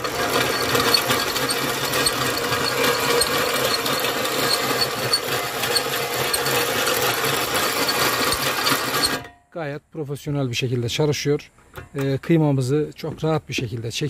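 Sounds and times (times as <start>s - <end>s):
chain and gears rattling: 0.0s - 9.2s
drill motor hum: 0.0s - 9.2s.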